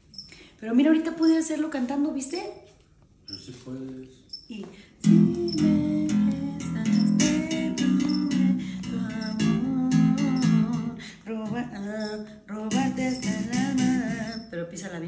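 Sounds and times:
electric bass guitar plucked: 0:05.0 - 0:11.8, 0:12.6 - 0:14.3
person singing: 0:05.0 - 0:14.5.

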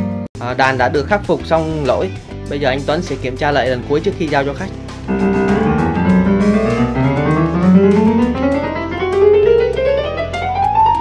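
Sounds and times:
low held bass notes: 0:04.8 - 0:09.9
keyboard notes climbing in pitch: 0:05.1 - 0:11.0.

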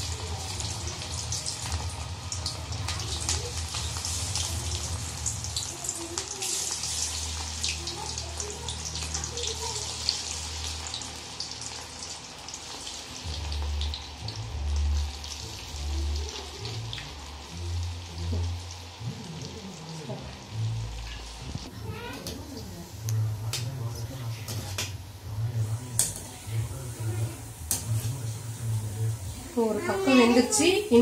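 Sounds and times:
food deep-frying in oil: 0:00.0 - 0:31.0.

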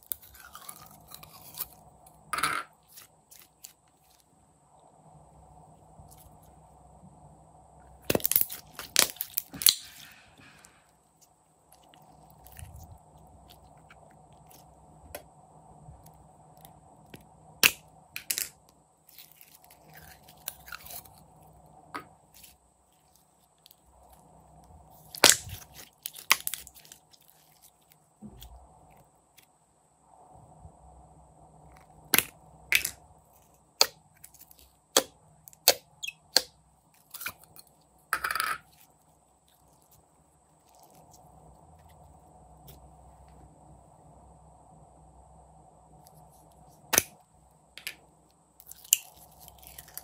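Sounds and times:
slime clicking and crackling: 0:25.1 - 0:27.6.

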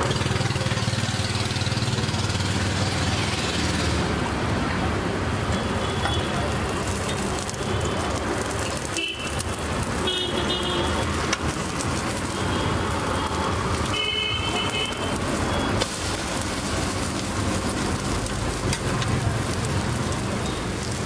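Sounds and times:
omelet sizzling in a pan: 0:00.0 - 0:21.0
street traffic: 0:00.0 - 0:21.0
vehicle horn toots: 0:13.9 - 0:15.2.

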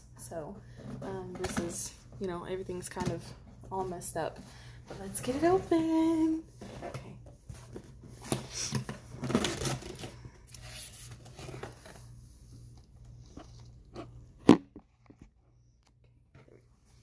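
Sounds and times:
cardboard box tearing and rustling: 0:09.1 - 0:10.1.

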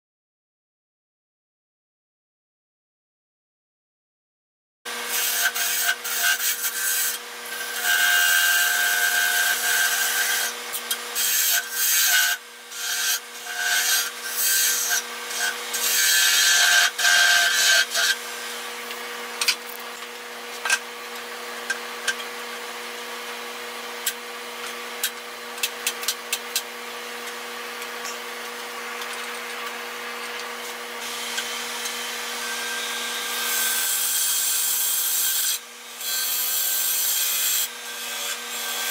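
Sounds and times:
gouge cutting wood: 0:05.2 - 0:19.8
wood lathe humming: 0:05.7 - 0:24.2.

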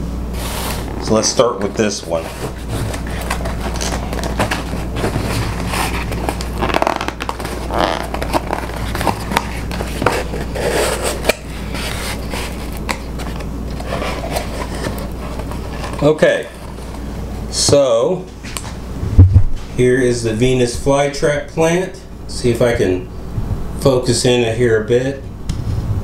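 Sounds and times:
steady low hum: 0:00.0 - 0:26.0
cardboard box scraping: 0:00.3 - 0:17.0
plastic wrap crinkling: 0:02.1 - 0:17.0.

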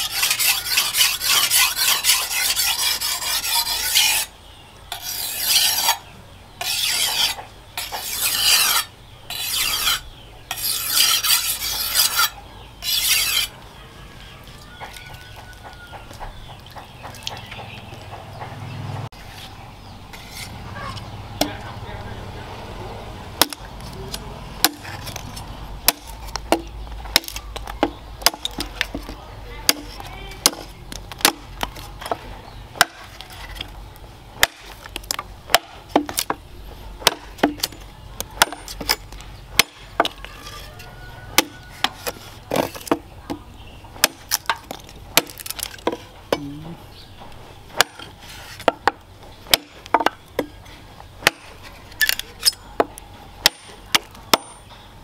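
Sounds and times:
machete chopping wood: 0:23.4 - 0:25.0, 0:25.8 - 0:32.2, 0:32.8 - 0:33.2, 0:34.4 - 0:36.4, 0:37.0 - 0:40.2, 0:41.4 - 0:43.4, 0:44.0 - 0:46.6, 0:47.8 - 0:50.6, 0:51.2 - 0:54.6.

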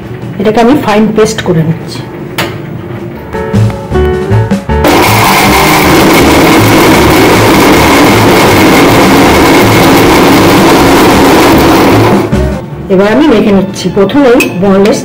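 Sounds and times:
mixer grinder whining: 0:04.8 - 0:12.4.

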